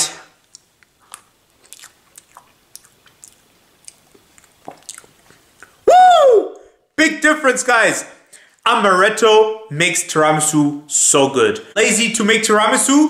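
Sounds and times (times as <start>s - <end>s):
person chewing wetly: 0.4s - 5.8s.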